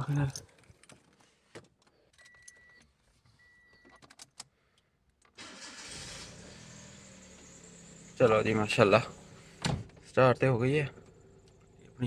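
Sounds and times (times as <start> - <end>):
car keys jangling: 0.2 - 3.0, 3.8 - 4.5
car engine cranking and starting: 5.2 - 12.0.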